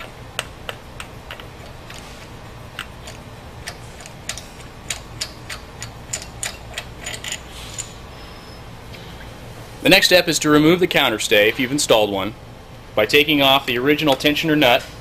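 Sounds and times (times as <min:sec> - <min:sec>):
ratchet clicking: 0:02.8 - 0:08.0.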